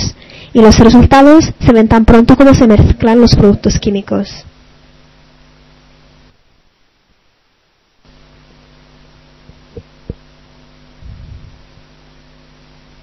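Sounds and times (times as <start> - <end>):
low electrical hum: 0.0 - 13.0
faint hiss: 3.7 - 13.0.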